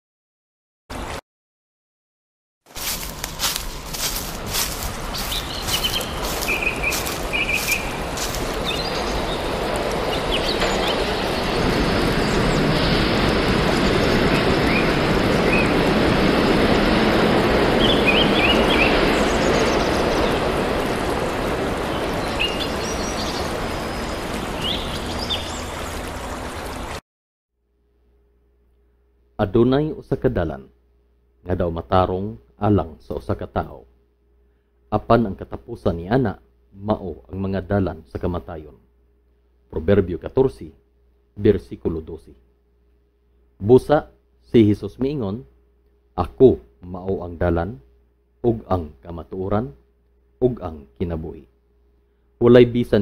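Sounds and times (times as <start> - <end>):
steady rushing noise: 2.8 - 27.0
bird chirps: 4.0 - 9.5, 10.1 - 12.6, 17.8 - 20.4, 21.9 - 25.8.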